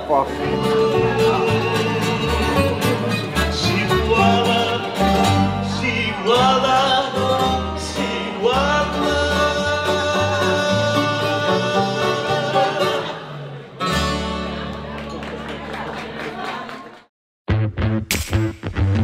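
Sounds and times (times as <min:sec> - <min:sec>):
double bass: 0:00.0 - 0:15.0
acoustic guitar strumming: 0:00.0 - 0:15.2
man singing: 0:00.2 - 0:13.5.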